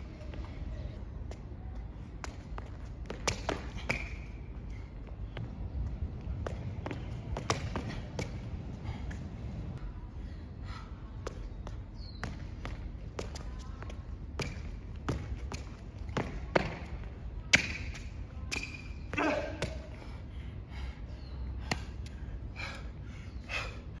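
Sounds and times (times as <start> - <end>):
low background rumble: 0.0 - 17.6.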